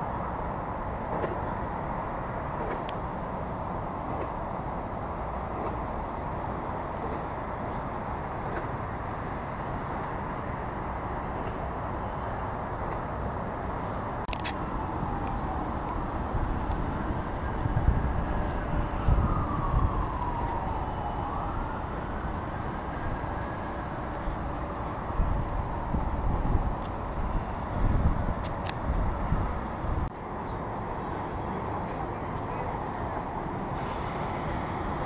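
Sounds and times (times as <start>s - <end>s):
outdoor noise rush: 0.0s - 35.0s
wind buffeting microphone: 0.0s - 35.0s.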